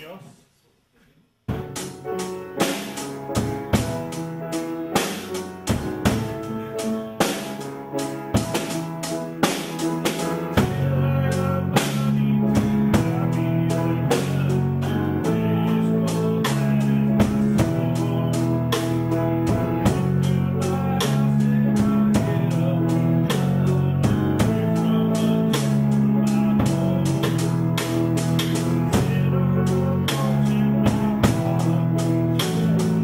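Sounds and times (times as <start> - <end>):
drum kit steady beat: 1.4 - 33.0.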